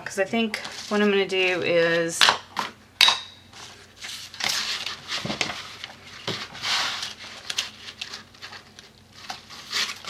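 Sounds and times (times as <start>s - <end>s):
plastic stencils rustling: 3.5s - 10.0s.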